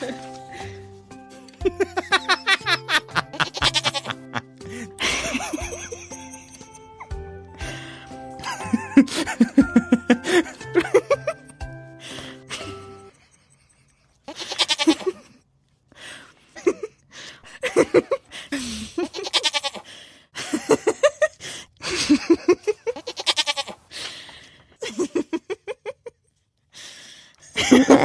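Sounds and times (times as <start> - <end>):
young goats bleating: 3.4 - 4.2, 14.3 - 15.2, 19.1 - 19.8, 23.0 - 23.8.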